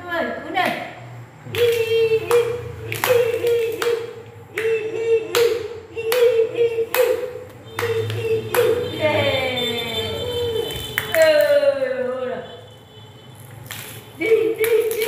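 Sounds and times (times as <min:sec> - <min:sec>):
voices singing or chanting: 0:01.3 - 0:12.4, 0:14.2 - 0:15.0
hands clapping in rhythm: 0:01.4 - 0:09.2, 0:10.7 - 0:11.5, 0:13.7 - 0:15.0.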